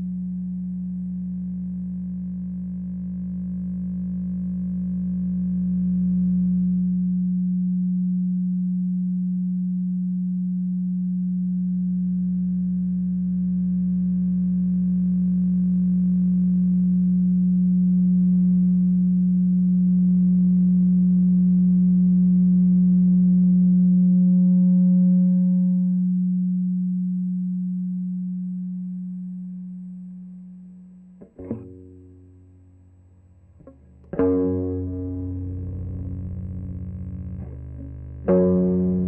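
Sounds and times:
low electronic drone: 0:27.8 - 0:39.0
faint higher electronic tones: 0:33.6 - 0:39.0.

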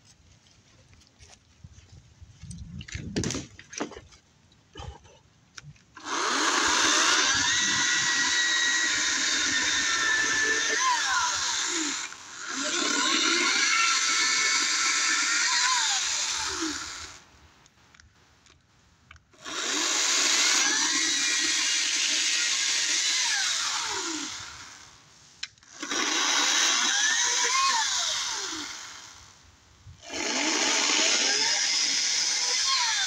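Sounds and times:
electric chainsaw cutting logs: 0:06.0 - 0:17.3, 0:19.4 - 0:25.0, 0:25.7 - 0:29.4, 0:30.0 - 0:33.0.

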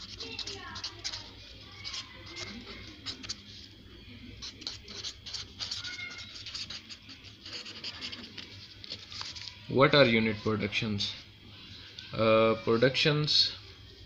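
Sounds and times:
pen scratching on paper: 0:00.0 - 0:03.5, 0:04.4 - 0:09.4
faint pen squeaks: 0:00.0 - 0:03.6, 0:04.3 - 0:09.6.

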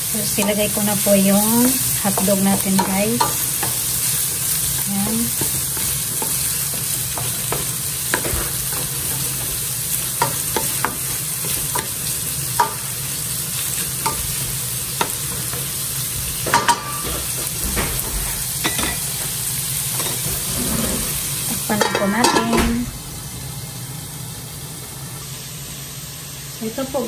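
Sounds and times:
food sizzling in frying pan: 0:00.0 - 0:27.0
wooden spatula scraping pan: 0:20.1 - 0:21.3.

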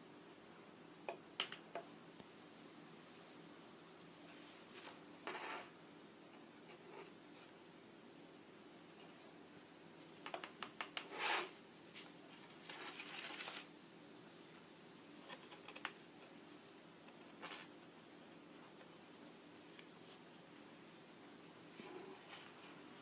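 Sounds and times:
rustling scrape: 0:04.3 - 0:05.7, 0:11.1 - 0:13.7, 0:21.7 - 0:23.0
cat scratching cardboard: 0:15.2 - 0:16.4.

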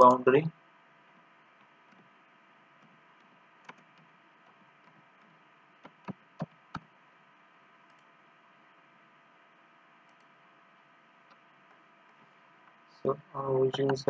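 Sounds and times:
faint steady hum: 0:00.0 - 0:14.0
mouse and keyboard clicks: 0:13.7 - 0:14.0.

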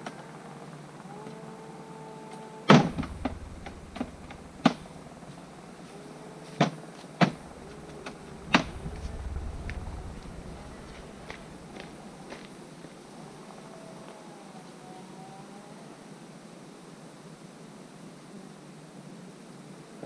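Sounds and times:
knocks and clunks on quad bike: 0:02.7 - 0:05.3, 0:06.6 - 0:12.0
low rumble: 0:02.7 - 0:05.8, 0:07.3 - 0:12.6.

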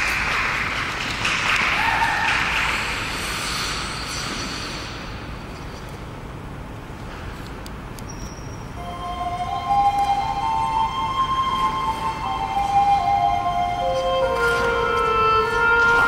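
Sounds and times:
small group applauding: 0:00.0 - 0:03.0
cheer: 0:01.5 - 0:02.9.

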